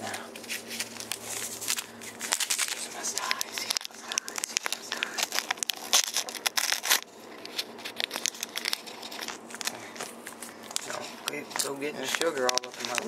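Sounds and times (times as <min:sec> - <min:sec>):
handling noise: 0:00.0 - 0:13.0
paper packets tearing and crinkling: 0:00.0 - 0:13.0.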